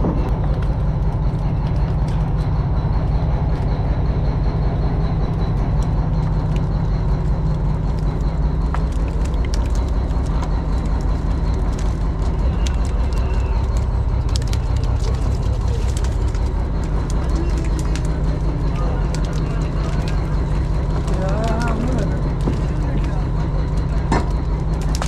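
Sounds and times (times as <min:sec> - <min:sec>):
boat engine droning: 0:00.0 - 0:25.0
hose water gushing and splashing: 0:06.2 - 0:24.9.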